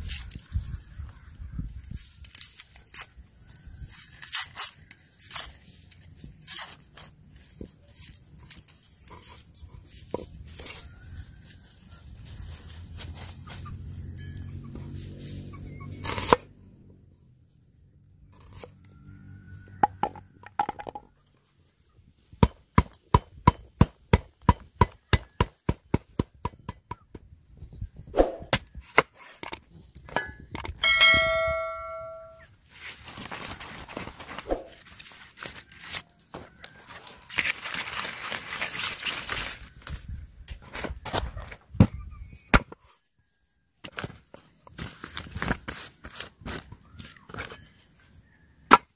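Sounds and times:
ringing metallic ding: 30.2 - 32.4.

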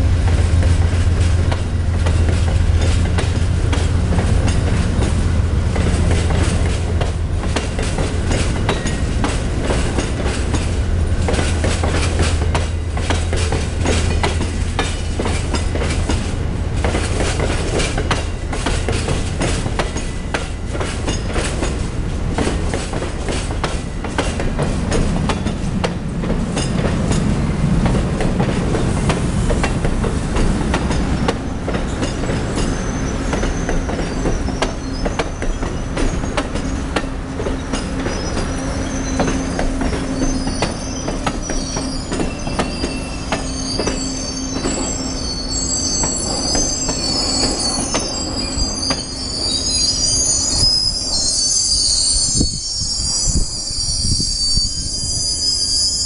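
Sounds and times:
train cars rumbling: 0.0 - 56.0
wheels clicking over rail joints: 0.2 - 44.0
wheel flange squeal: 32.0 - 36.9, 37.5 - 56.0.

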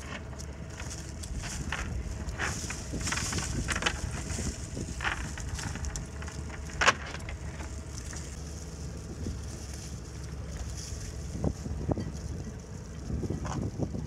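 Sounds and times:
net weights clicking on boat deck: 0.0 - 8.4
low rumble: 0.0 - 14.0.

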